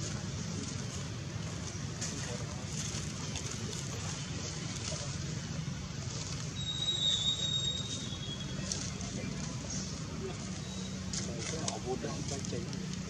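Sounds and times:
thin high whistling tone: 6.6s - 8.7s.

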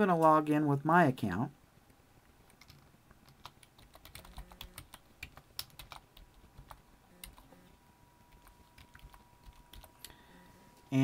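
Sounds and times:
typing on computer keyboard: 2.5s - 7.5s, 8.3s - 10.2s.

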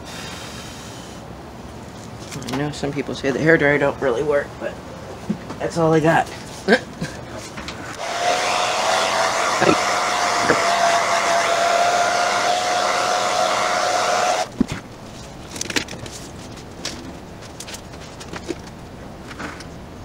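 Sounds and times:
hair dryer running: 8.0s - 14.5s.

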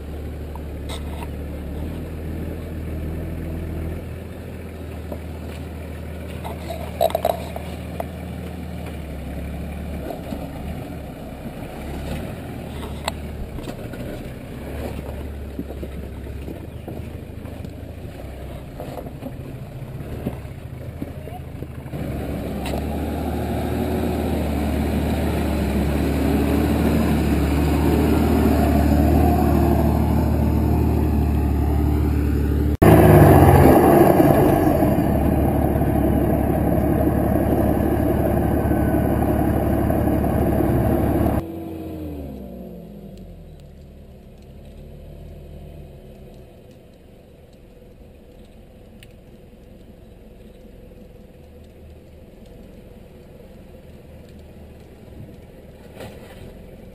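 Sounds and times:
off-road engines running hard: 0.0s - 56.9s
tyre noise: 4.9s - 41.4s.

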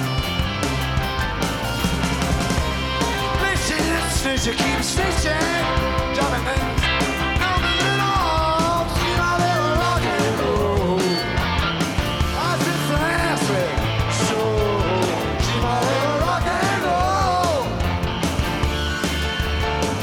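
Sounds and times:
live rock band playing: 0.0s - 20.0s
sliding electric guitar lead: 0.0s - 20.0s.

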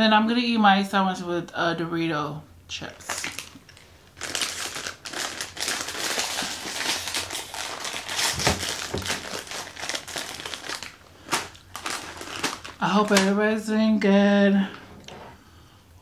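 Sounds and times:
snack bag rustling and crackling: 3.0s - 13.4s.

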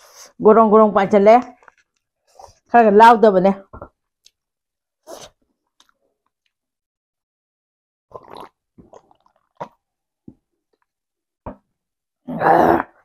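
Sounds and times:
person slurping and gulping drink: 8.1s - 9.9s.

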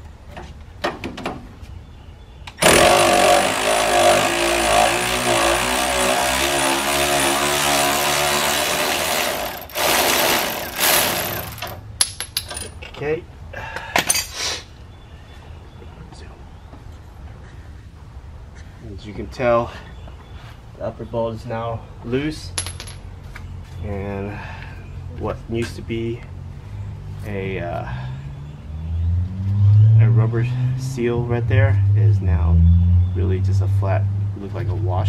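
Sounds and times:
cordless power tool running: 2.6s - 11.8s.

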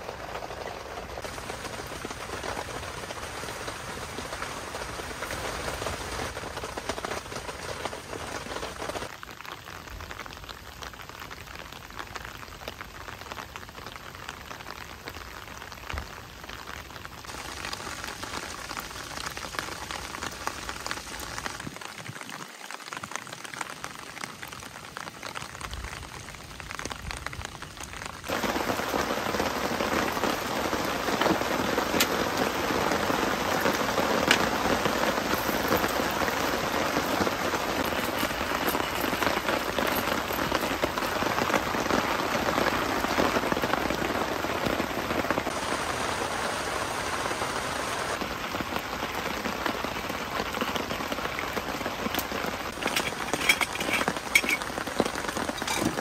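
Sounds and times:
steady rain: 0.0s - 56.0s.

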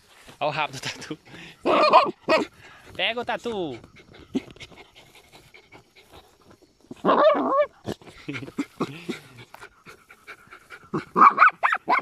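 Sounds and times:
dog whining: 7.0s - 7.7s.

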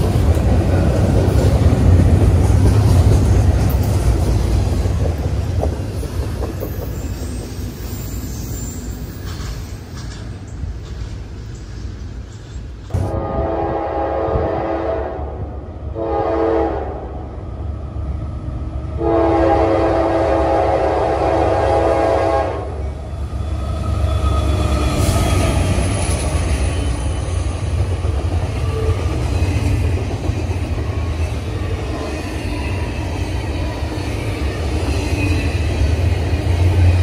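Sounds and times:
train rumble and wheel clatter: 0.0s - 37.0s
train air horn blasts: 12.9s - 17.1s, 19.0s - 22.8s.

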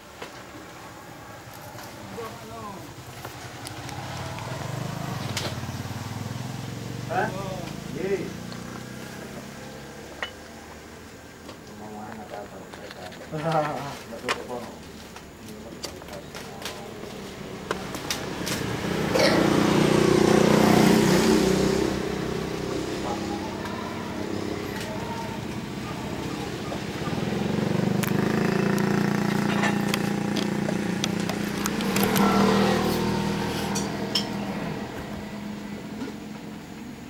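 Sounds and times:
vehicle engine running: 14.5s - 37.0s.

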